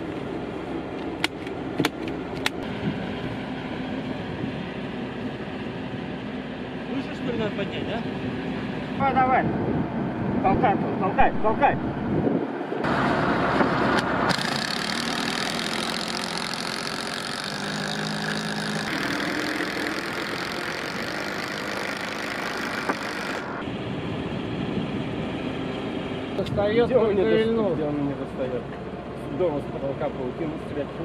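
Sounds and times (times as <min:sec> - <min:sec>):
truck engine running: 0:12.8 - 0:31.0.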